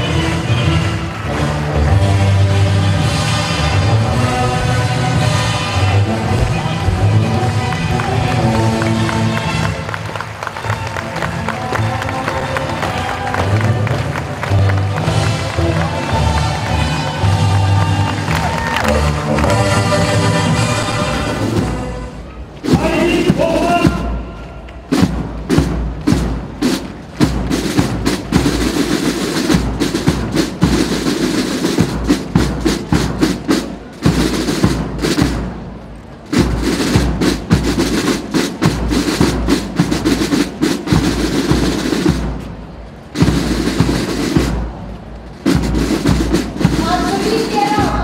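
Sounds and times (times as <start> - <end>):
snare drum rolls: 6.1 - 21.8, 22.6 - 48.0
bass drum beats: 6.2 - 8.5.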